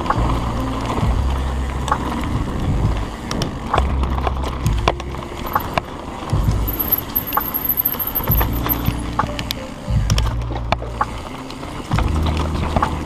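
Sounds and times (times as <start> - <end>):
background music with bass: 0.0 - 13.0
bike rattling over rough trail: 2.8 - 9.1
bike clicks and knocks: 6.4 - 9.0.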